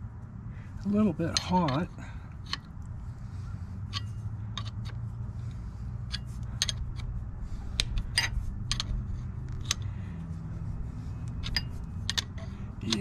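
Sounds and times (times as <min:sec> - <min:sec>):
steady low hum: 0:00.0 - 0:13.0
wrench clicking on metal: 0:01.3 - 0:02.7, 0:06.1 - 0:07.1, 0:07.7 - 0:09.9, 0:11.2 - 0:13.0.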